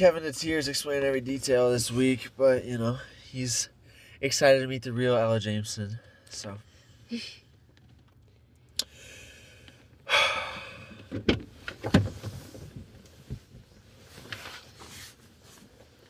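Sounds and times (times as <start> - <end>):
rustling: 11.6 - 16.0.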